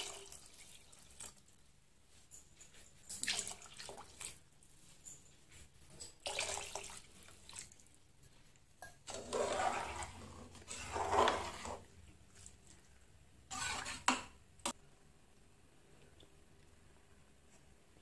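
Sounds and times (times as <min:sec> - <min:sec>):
ladle stirring and splashing: 0:00.0 - 0:02.2, 0:02.8 - 0:14.8.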